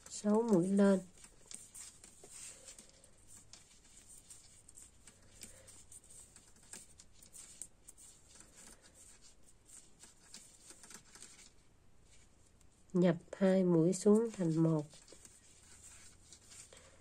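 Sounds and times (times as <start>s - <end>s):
knitting needles clicking: 0.0s - 11.5s.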